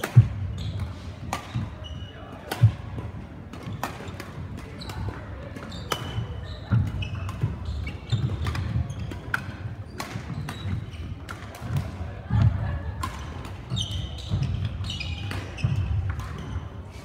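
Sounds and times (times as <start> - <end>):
shoe squeaks: 0.0 - 2.3, 5.7 - 11.3, 13.7 - 17.0
racket hitting shuttlecock: 0.0 - 17.0.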